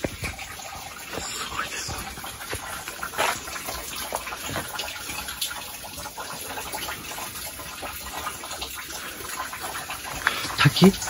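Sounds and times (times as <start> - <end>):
waterfall rushing: 1.0 - 4.6.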